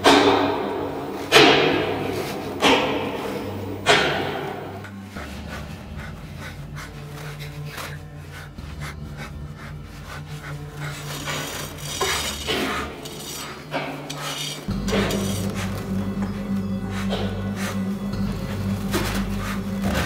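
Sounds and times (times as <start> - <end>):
low steady drone: 0.0 - 20.0
clinks and scrapes: 10.2 - 16.4.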